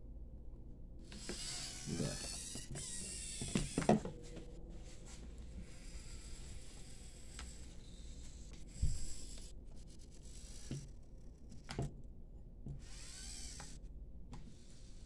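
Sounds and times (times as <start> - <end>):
servo motors running faintly: 1.0 - 12.0, 12.6 - 15.0
brief motor whine: 12.8 - 13.8.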